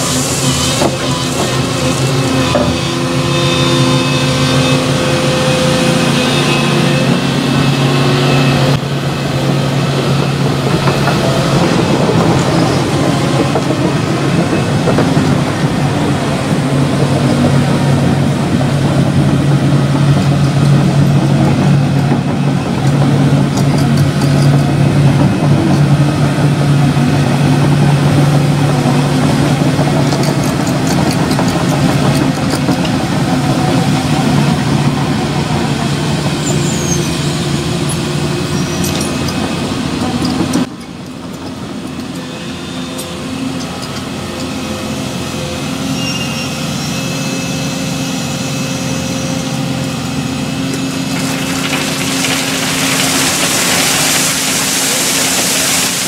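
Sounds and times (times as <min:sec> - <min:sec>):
excavator diesel engine running: 0:00.0 - 0:56.0
rushing hiss: 0:51.2 - 0:56.0.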